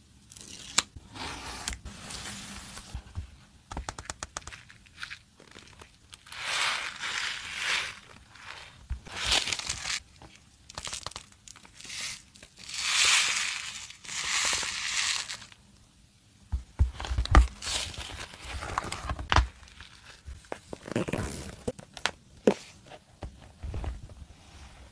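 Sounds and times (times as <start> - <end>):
pages turning: 0.4 - 15.6, 17.0 - 22.6
notebook taps and knocks: 3.2 - 4.5.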